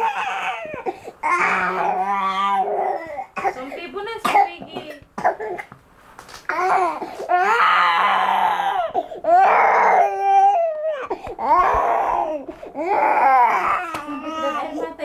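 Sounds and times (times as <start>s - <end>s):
baby crying loudly: 0.0s - 3.6s, 6.5s - 14.9s.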